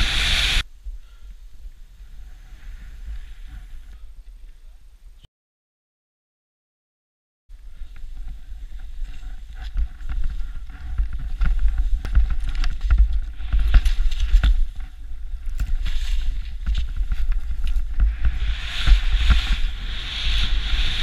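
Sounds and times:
hiss of snow under skis: 0.0 - 0.6, 15.8 - 21.0
wind rumble on microphone: 0.0 - 5.2, 7.5 - 21.0.

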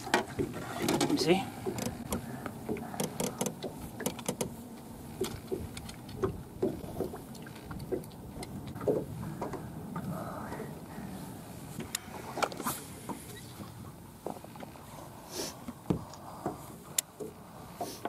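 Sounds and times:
fishing rods and reels clicking: 0.0 - 9.6, 11.8 - 13.7.

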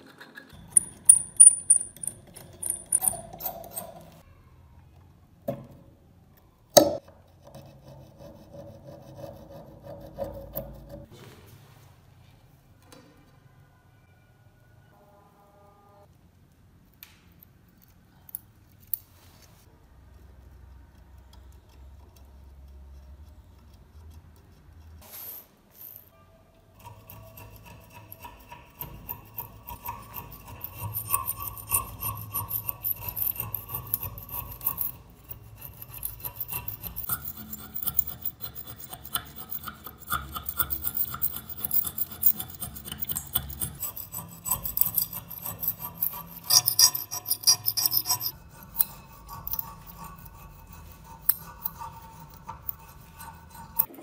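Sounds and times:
metal tool scraping rust: 0.0 - 4.3, 26.7 - 54.0.

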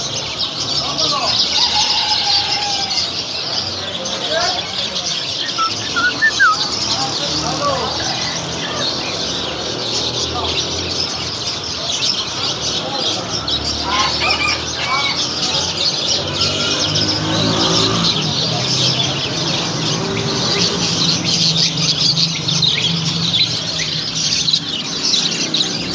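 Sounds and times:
caged birds chirping and squawking: 0.0 - 25.9.

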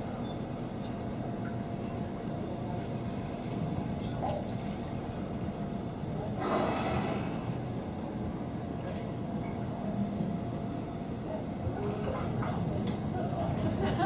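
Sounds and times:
boat engine rumble: 0.0 - 14.0
whale blow whoosh: 6.4 - 7.6.

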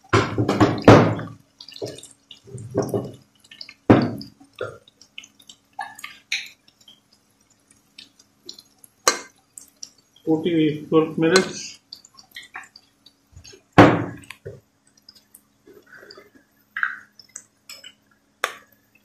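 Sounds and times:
seeds frying in oil: 0.0 - 19.0
loud knocks: 13.8 - 14.2.

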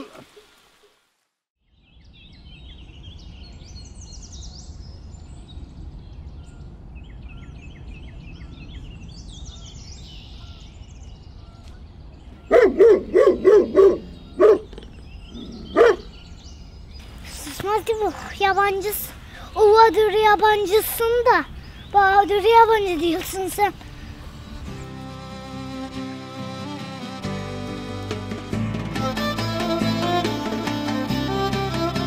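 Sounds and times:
birds chirping: 1.7 - 28.4
dog barking: 12.5 - 14.7, 15.4 - 16.2.

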